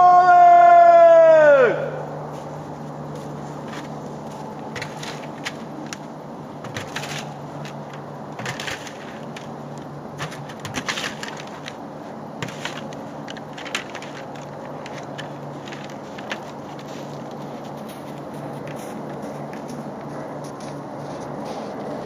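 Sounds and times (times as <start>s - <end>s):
steady low hum: 0.0s - 22.0s
footsteps crunching on snow: 2.2s - 7.9s, 10.3s - 22.0s
plastic pails clattering: 6.6s - 9.6s, 10.2s - 11.8s, 12.4s - 17.0s.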